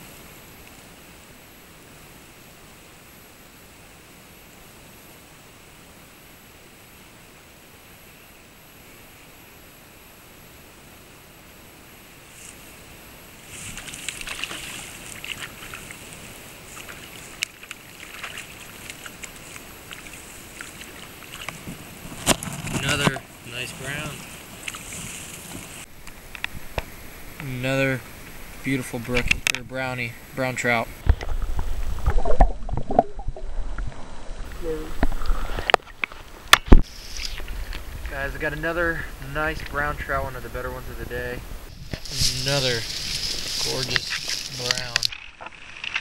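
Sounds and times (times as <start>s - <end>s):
steady hiss: 0.0s - 32.7s, 33.7s - 46.0s
shallow stream water splashing: 13.4s - 25.9s, 42.0s - 46.0s.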